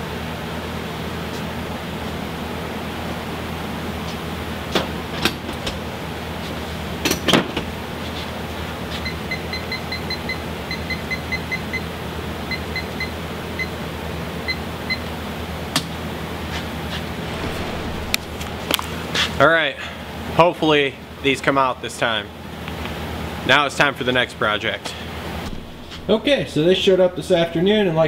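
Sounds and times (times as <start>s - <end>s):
steady machine hum: 16.8s - 20.1s
metal clanks: 17.2s - 19.4s.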